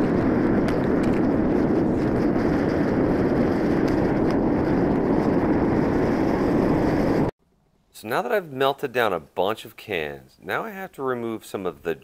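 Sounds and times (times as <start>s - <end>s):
burner flame rushing: 0.0s - 7.3s.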